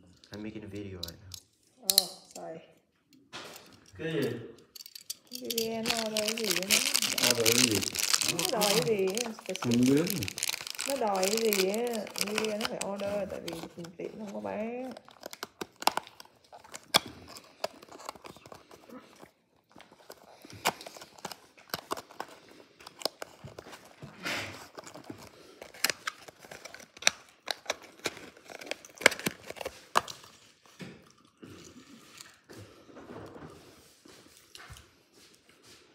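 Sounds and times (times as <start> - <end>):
cardboard box crinkling: 5.5 - 30.6.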